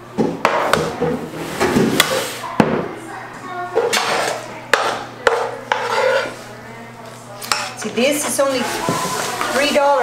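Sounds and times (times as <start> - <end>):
utensils knocking on cookware: 3.8 - 6.4.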